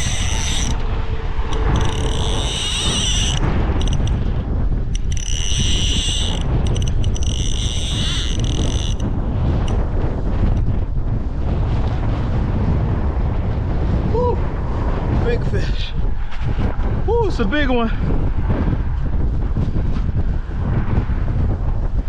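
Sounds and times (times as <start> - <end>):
fishing reel drag buzzing: 0.0 - 0.8, 1.5 - 4.2, 4.9 - 9.8
wind rumbling on microphone: 0.0 - 22.0.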